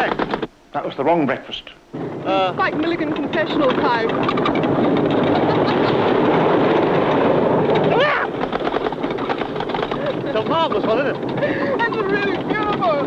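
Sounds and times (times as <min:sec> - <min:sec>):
roller coaster clattering on track: 0:00.0 - 0:00.5, 0:02.0 - 0:13.0
rider yelling: 0:07.8 - 0:08.4.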